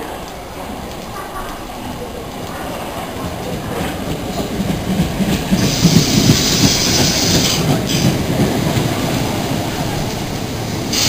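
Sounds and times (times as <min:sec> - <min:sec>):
train wheels rumbling on rails: 0:00.0 - 0:11.0
high hiss: 0:05.6 - 0:08.1, 0:09.1 - 0:11.0.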